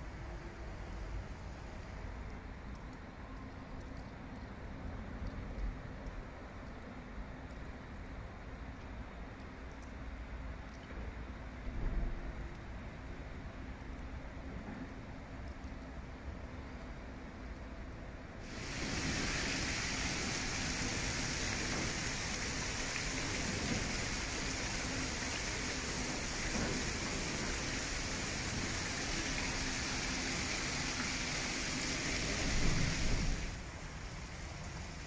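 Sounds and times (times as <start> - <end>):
water rushing into lock chamber: 18.4 - 35.0.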